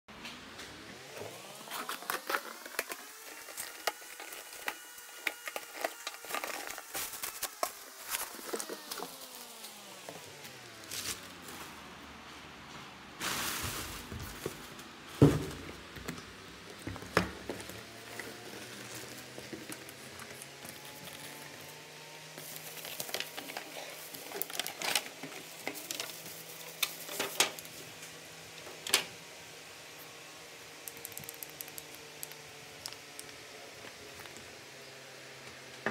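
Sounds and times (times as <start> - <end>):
cardboard packaging rustling: 1.3 - 12.0, 13.2 - 16.0, 16.7 - 28.0.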